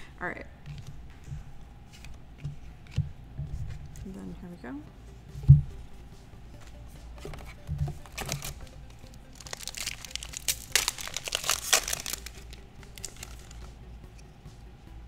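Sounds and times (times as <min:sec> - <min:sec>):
foil wrapper tearing and crinkling: 0:08.0 - 0:08.7, 0:09.3 - 0:13.6.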